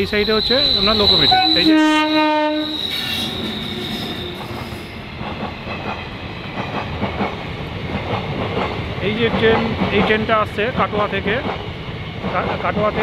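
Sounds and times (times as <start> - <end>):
passenger train passing: 0.0 - 13.0
wheels clacking over rail joints: 4.3 - 13.0.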